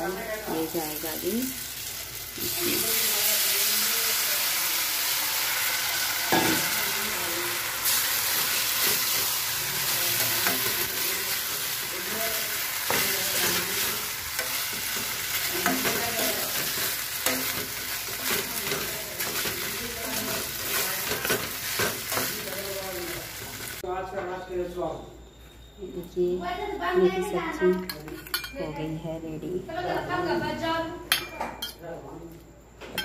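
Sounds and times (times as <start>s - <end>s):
potatoes sizzling in a pan: 0.0s - 23.9s.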